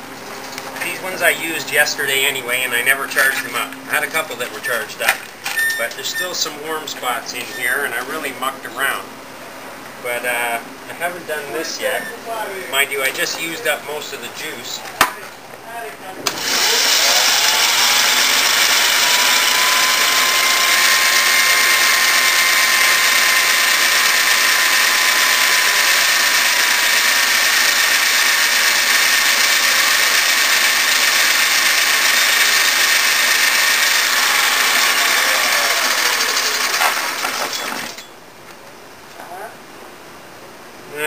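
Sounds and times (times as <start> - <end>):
electric motor whine: 16.3 - 38.1.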